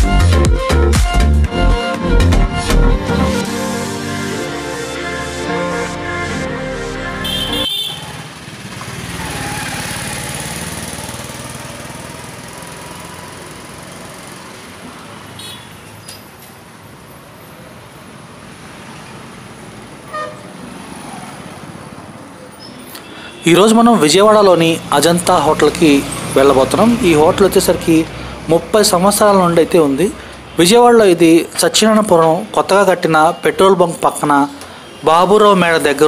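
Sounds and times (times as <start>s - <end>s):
horn toot: 3.1s - 8.2s, 20.1s - 20.5s
motorbikes and rickshaws passing: 6.7s - 36.0s
vehicle passing close: 7.1s - 15.4s, 17.5s - 23.0s, 23.6s - 31.2s.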